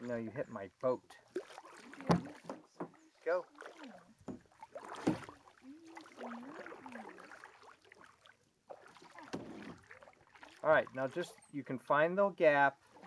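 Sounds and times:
kayak paddle in water: 0.0 - 13.0
sharp splash or knock: 1.3 - 3.0, 3.6 - 10.6.

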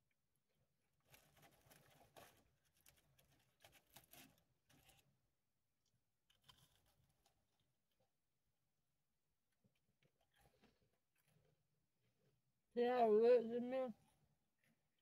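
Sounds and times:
paper wrapper crinkling: 1.0 - 5.2.

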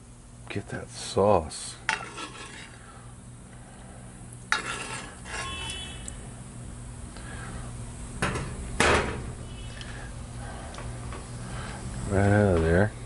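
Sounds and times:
metal spoon scraping and clinking: 1.9 - 2.7, 4.5 - 5.8.

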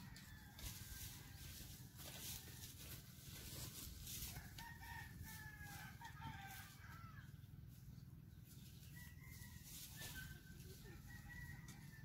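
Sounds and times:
faint rooster crowing: 0.0 - 3.0, 4.2 - 7.5, 8.7 - 12.0.

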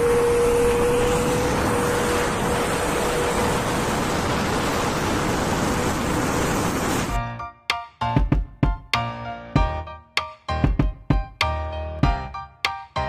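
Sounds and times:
steady whine: 0.0 - 7.2
truck exhaust rushing: 0.0 - 7.2.

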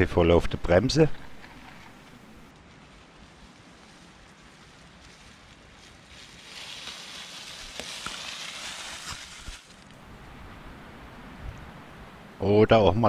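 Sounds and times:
bike tyres rolling over dirt: 0.6 - 10.0.

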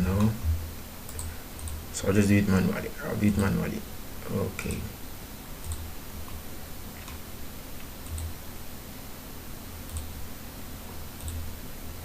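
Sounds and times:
computer mouse clicking: 0.1 - 0.4, 1.1 - 1.8, 5.6 - 6.4, 7.0 - 7.2, 7.8 - 8.3, 9.8 - 10.1, 11.2 - 11.5.

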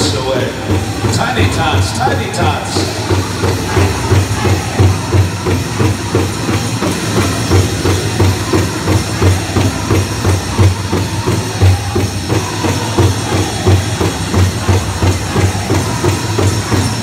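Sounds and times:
big drum steady beat: 0.0 - 17.0.

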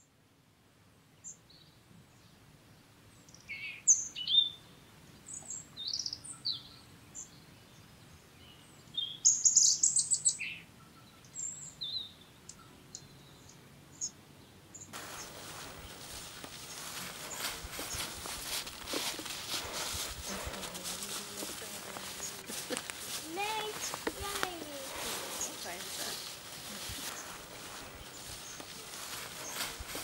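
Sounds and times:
steady rustle: 15.0 - 30.0
birds chirping and whistling: 22.0 - 24.1, 24.8 - 30.0.

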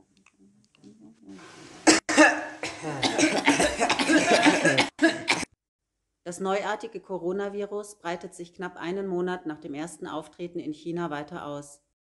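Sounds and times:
person coughing: 1.9 - 5.6
throat clearing: 2.1 - 5.5.

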